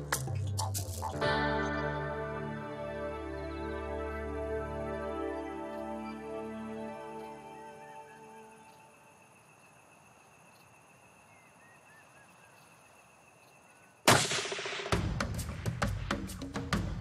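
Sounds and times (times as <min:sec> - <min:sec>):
faint bird chirps: 0:03.2 - 0:14.0
rifle shot: 0:14.1 - 0:15.0
music drum hits: 0:14.1 - 0:17.0.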